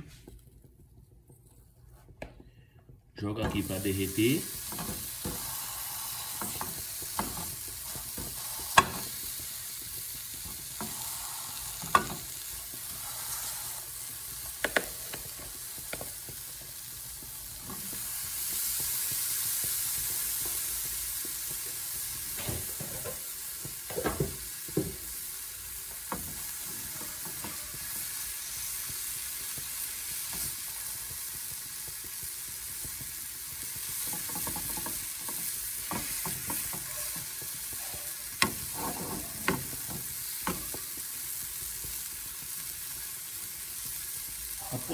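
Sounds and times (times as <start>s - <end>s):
cheese sizzling in frying pan: 0.0s - 44.9s
spoon tapping pan: 32.0s - 38.8s, 39.4s - 41.2s.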